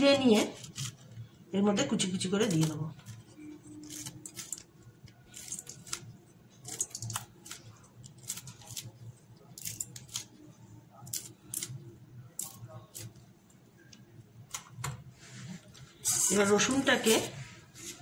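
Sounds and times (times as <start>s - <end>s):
scissors snipping chilli: 9.5s - 10.3s, 11.0s - 11.8s, 12.4s - 13.2s.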